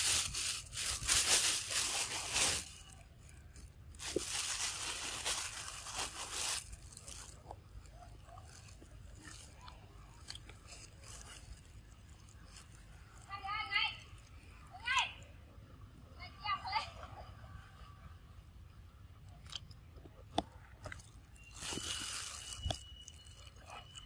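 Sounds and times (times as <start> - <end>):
dense crackling crunching noise: 0.0 - 13.4, 20.0 - 24.0.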